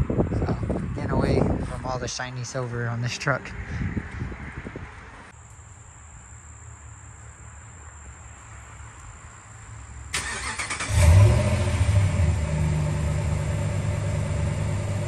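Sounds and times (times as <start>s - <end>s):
pickup engine idling: 10.2s - 15.0s.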